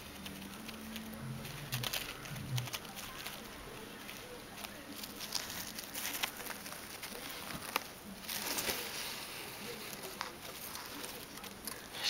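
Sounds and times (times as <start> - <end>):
shredded paper rustling: 0.0 - 12.0.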